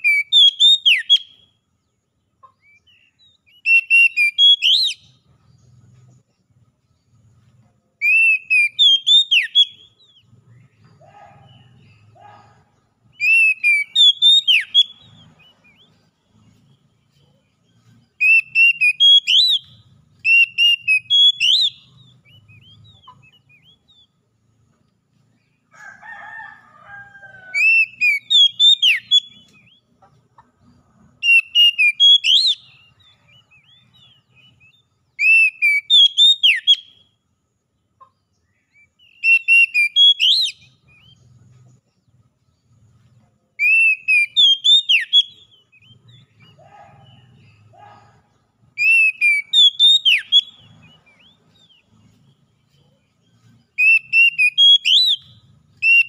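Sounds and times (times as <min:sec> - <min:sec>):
bird singing whistled phrases: 0:00.0 - 0:01.5, 0:03.0 - 0:05.2, 0:08.0 - 0:10.2, 0:13.1 - 0:16.0, 0:18.2 - 0:24.1, 0:27.6 - 0:29.8, 0:31.2 - 0:37.1, 0:38.7 - 0:41.2, 0:43.6 - 0:48.0, 0:48.8 - 0:51.8, 0:53.8 - 0:56.0.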